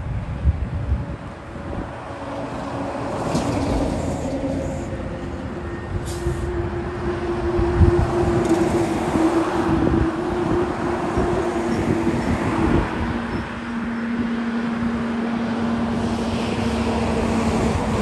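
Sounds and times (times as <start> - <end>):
bus engines whining: 0.0 - 18.0
short air hisses: 6.0 - 6.5.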